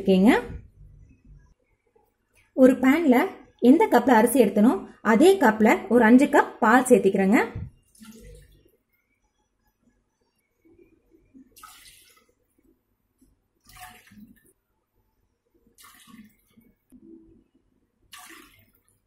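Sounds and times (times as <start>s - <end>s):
milk splashing into pan: 11.6s - 12.4s, 13.6s - 14.6s, 15.8s - 16.8s, 18.1s - 19.0s.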